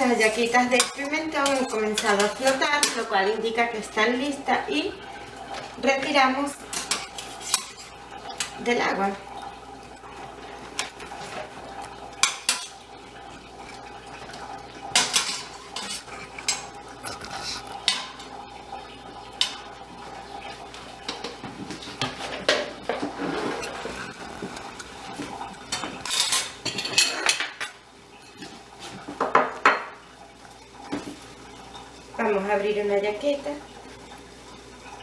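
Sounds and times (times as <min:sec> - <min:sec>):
kitchenware clattering: 0:00.0 - 0:03.2, 0:06.6 - 0:08.7, 0:12.2 - 0:12.8, 0:14.2 - 0:16.8, 0:17.4 - 0:18.3, 0:21.0 - 0:30.0
metal tongs scraping steel pot: 0:00.2 - 0:03.1, 0:06.7 - 0:08.6, 0:15.0 - 0:16.7.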